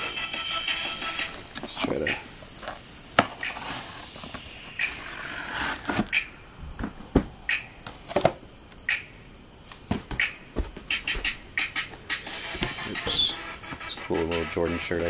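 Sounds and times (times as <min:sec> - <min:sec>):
cardboard scraping rustle: 0:05.1 - 0:06.1.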